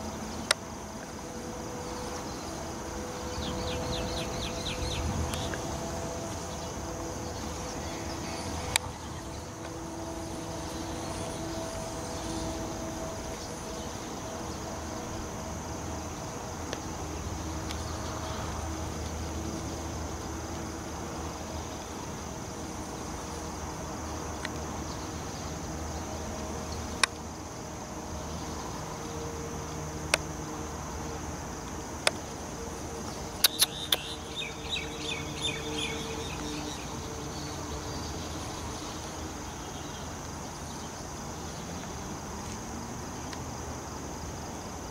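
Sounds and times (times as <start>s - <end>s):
insects chirring: 0.0s - 44.9s
sharp clicks: 33.4s - 34.2s
chirps: 33.4s - 36.9s.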